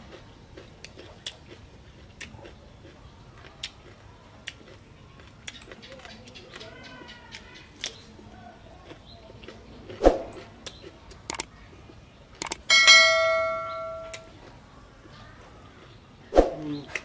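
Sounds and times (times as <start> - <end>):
clicks: 11.3 - 11.5, 12.4 - 12.6
bell ding: 12.7 - 14.2.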